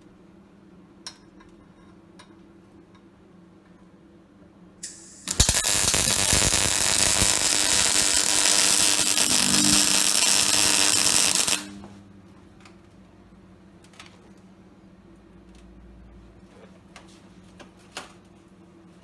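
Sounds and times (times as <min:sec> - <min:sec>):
gas hiss: 0:04.8 - 0:11.8
welding arc crackling: 0:04.8 - 0:11.9.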